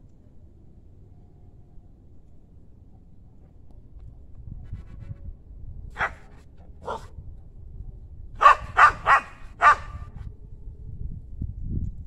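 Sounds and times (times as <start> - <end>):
dog barking: 6.0 - 7.1, 8.4 - 10.0.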